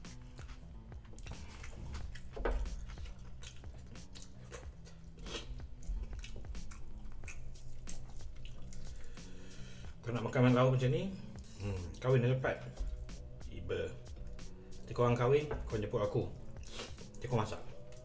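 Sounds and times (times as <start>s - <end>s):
man chewing and mouth smacking: 0.1s - 9.5s, 16.4s - 18.0s.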